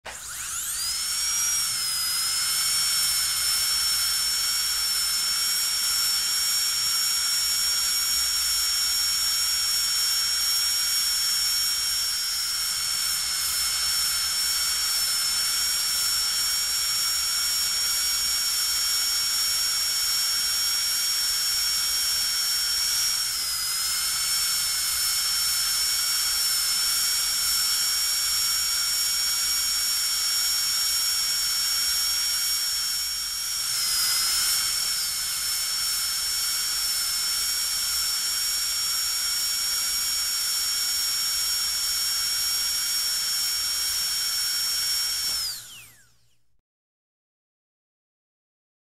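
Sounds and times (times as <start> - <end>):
dentist's drill whining: 0.0 - 46.5.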